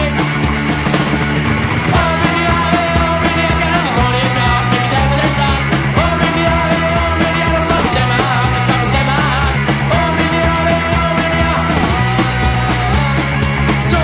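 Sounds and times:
punk rock song: 0.0s - 14.0s.

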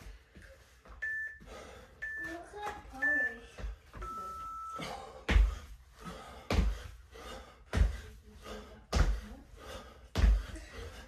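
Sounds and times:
feet thumping on foam mat: 0.0s - 11.0s
electronic timer beep: 1.0s - 4.9s.

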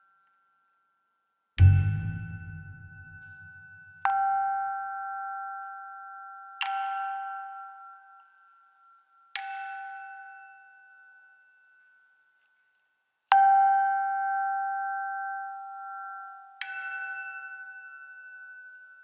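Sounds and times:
bell-like metal struck ringing: 1.6s - 4.4s.

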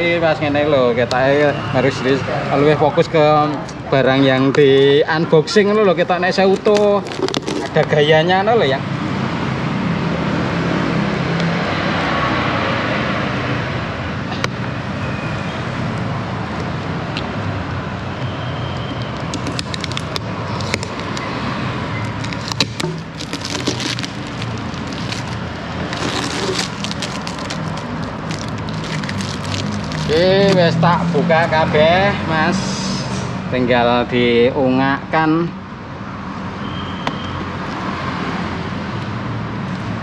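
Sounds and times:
vehicle traffic rumble: 0.0s - 40.0s
packing tape peeling and tearing: 6.5s - 7.8s, 19.1s - 30.8s.

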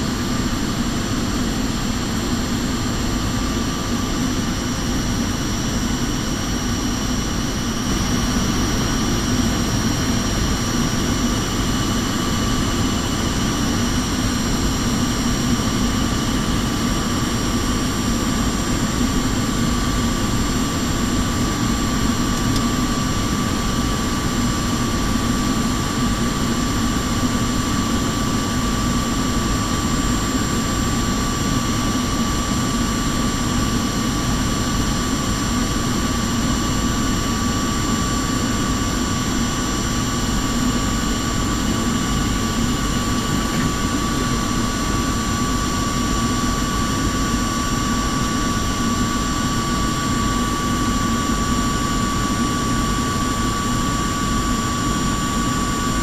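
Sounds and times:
airliner engine drone: 0.0s - 56.0s.

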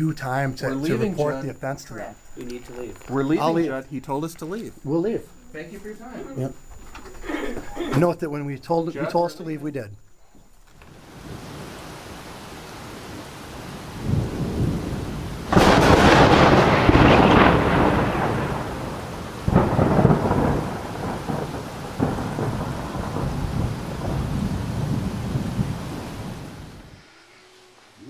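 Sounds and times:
rain: 10.5s - 28.0s
thunder: 13.9s - 26.9s.

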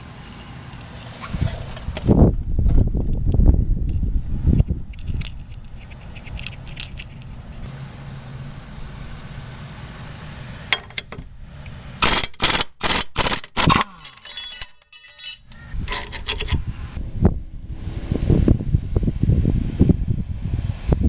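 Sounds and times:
ratchet rattle: 4.9s - 7.4s, 12.0s - 16.6s
socket wrench metallic strokes: 4.9s - 7.6s, 13.6s - 16.6s.

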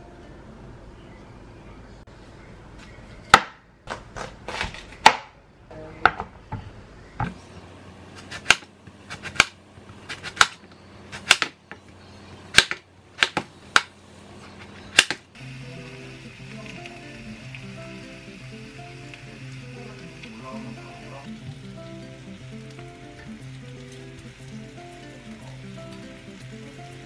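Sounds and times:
knife chopping on cutting board: 8.2s - 10.6s.

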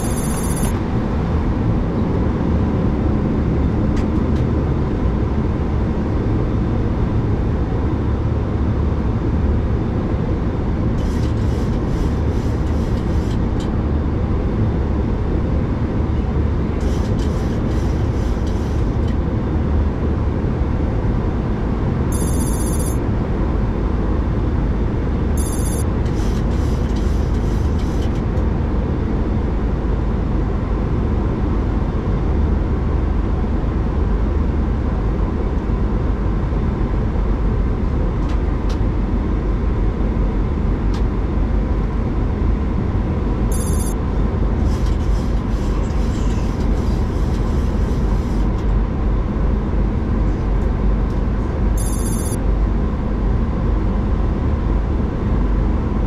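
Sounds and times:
high-pitched blips: 0.0s - 0.7s, 22.2s - 23.0s, 25.4s - 25.8s, 43.5s - 44.0s, 51.8s - 52.4s
jet engines running: 0.0s - 56.0s.

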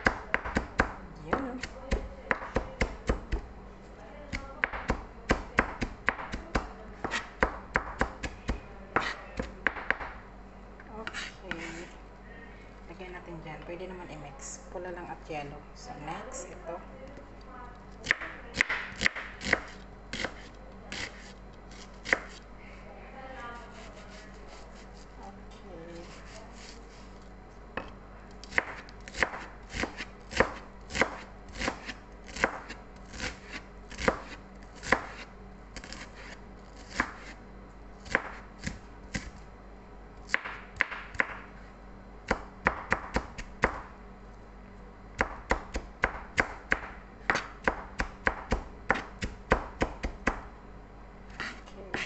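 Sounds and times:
knife chopping on cutting board: 4.6s - 8.4s, 9.0s - 10.2s, 18.0s - 22.4s, 28.5s - 37.4s, 38.0s - 39.4s, 40.3s - 41.5s, 45.2s - 50.5s, 51.3s - 52.0s.

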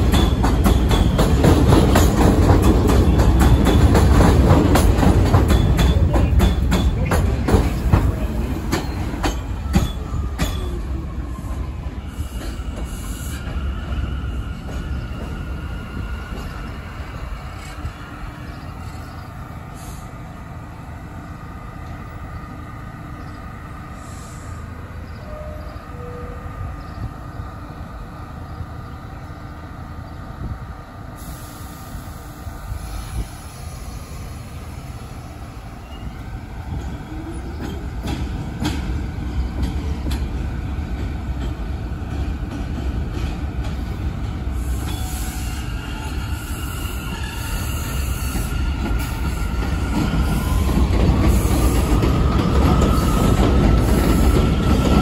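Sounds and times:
train rumble: 0.0s - 55.0s
high wheel squeal: 44.6s - 51.9s.

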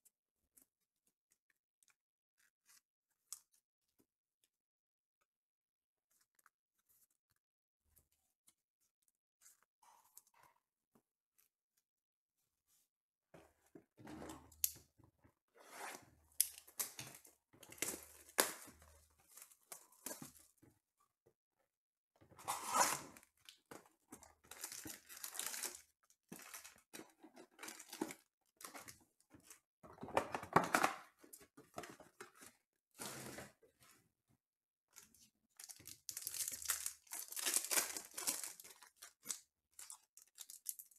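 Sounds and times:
packaging crinkling and tearing: 24.4s - 26.8s, 35.6s - 40.9s.

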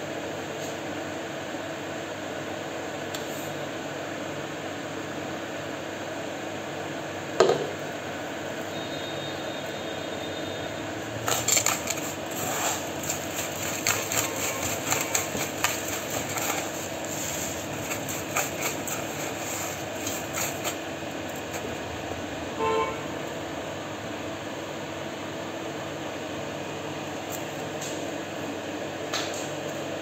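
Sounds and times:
fan hum: 0.0s - 30.0s
flatbreads crunching in metal bowl: 11.1s - 21.8s.

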